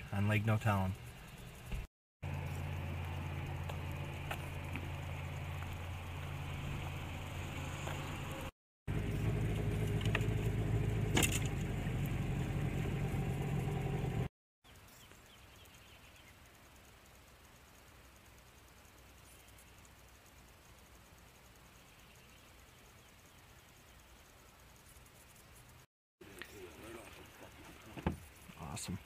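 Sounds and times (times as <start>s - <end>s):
low engine drone: 0.0s - 14.3s
faint lake background: 0.0s - 29.0s
small outboard motor running: 1.3s - 14.3s.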